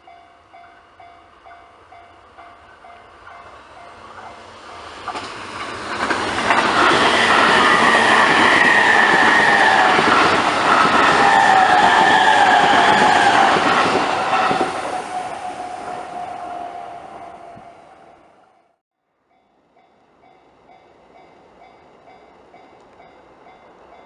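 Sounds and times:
high train whine: 0.0s - 24.0s
train wheels clattering over rails: 3.2s - 15.0s.

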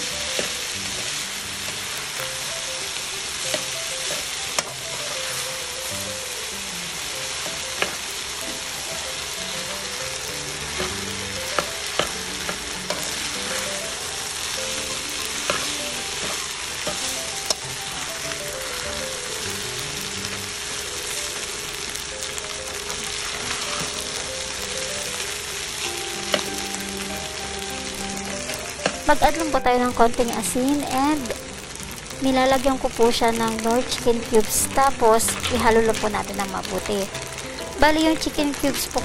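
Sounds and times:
rice sizzling in a hot pan: 0.0s - 39.0s.

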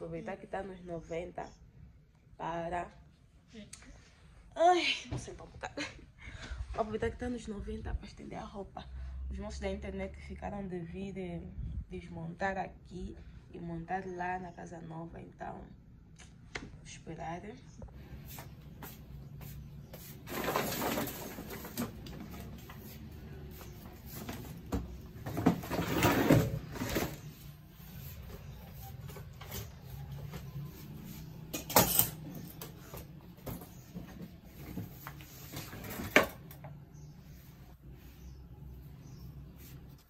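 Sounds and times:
luggage rustling and shifting: 20.3s - 22.8s, 23.9s - 27.3s.

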